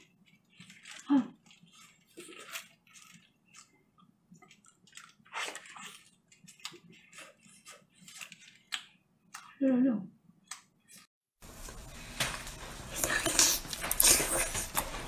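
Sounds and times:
wet biting and chewing: 0:00.0 - 0:09.6, 0:12.9 - 0:15.0.

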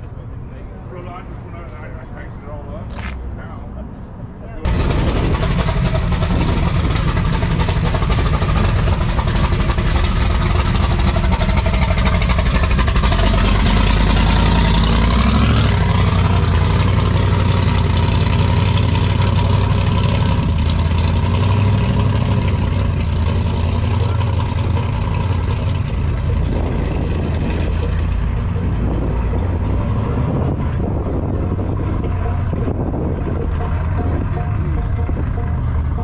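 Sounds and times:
car engine running: 0:04.7 - 0:36.0.

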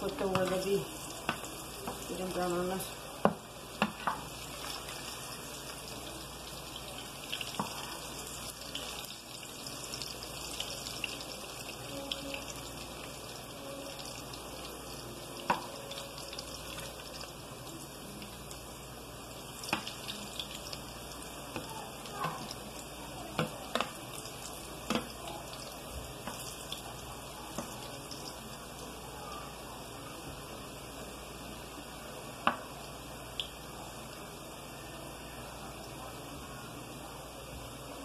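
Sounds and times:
slices sizzling in a pan: 0:00.0 - 0:30.0.

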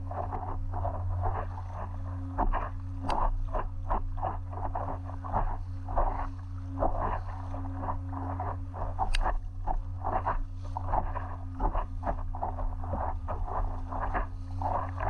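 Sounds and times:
steady low hum: 0:00.0 - 0:15.0
water splashing and lapping: 0:00.0 - 0:15.0
sharp click: 0:09.1 - 0:09.4.

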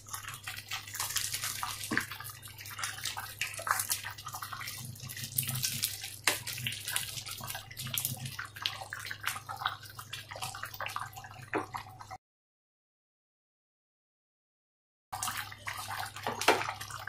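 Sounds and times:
spatula stirring thick soup: 0:00.0 - 0:12.1.

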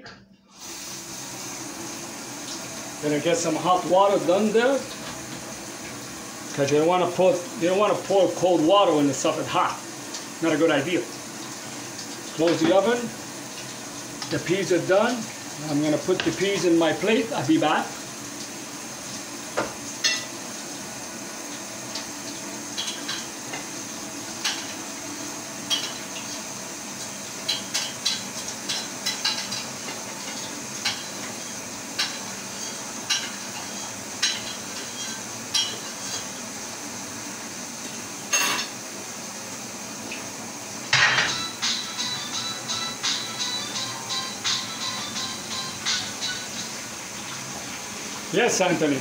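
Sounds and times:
dishes and cutlery clinking: 0:20.0 - 0:20.3, 0:25.7 - 0:26.2, 0:27.4 - 0:31.3, 0:32.0 - 0:36.3, 0:38.3 - 0:38.8, 0:40.9 - 0:46.7
dishes clattering: 0:27.4 - 0:31.2, 0:31.9 - 0:36.3, 0:38.3 - 0:38.8, 0:40.9 - 0:46.7.

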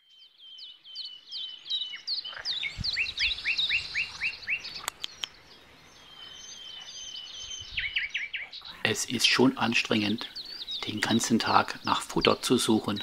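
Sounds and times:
high rapid bird chirps: 0:00.5 - 0:13.0
sharp clicks: 0:04.8 - 0:05.4.

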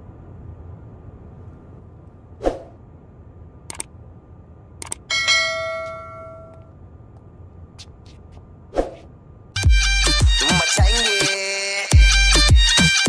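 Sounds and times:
mouse clicks: 0:03.7 - 0:03.9.

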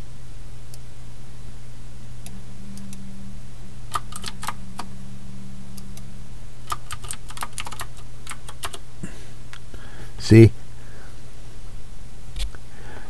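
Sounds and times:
steady low hum: 0:00.0 - 0:13.0
computer keyboard clicks: 0:03.9 - 0:04.6, 0:06.7 - 0:08.8.

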